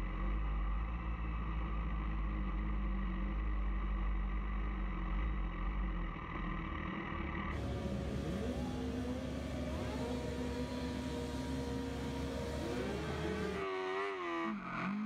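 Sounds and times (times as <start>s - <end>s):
motorcycle engines idling: 7.5s - 13.6s.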